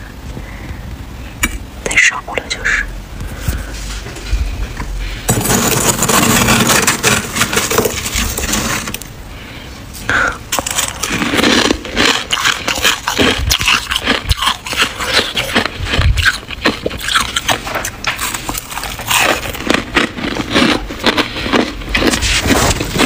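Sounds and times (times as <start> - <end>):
freezer frost crunching: 5.0 - 9.2, 10.0 - 23.0.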